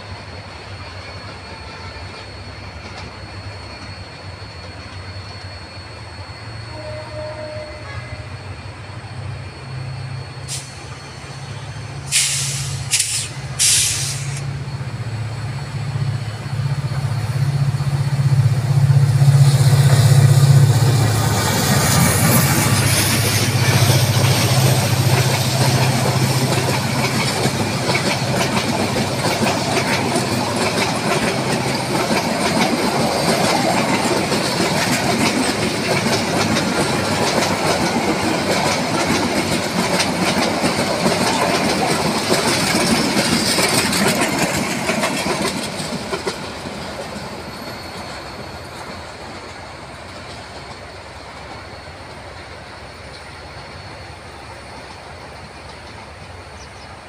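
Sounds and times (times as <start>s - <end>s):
diesel locomotive engine droning: 0.0s - 57.0s
train wheels clattering over rail joints: 16.8s - 56.8s.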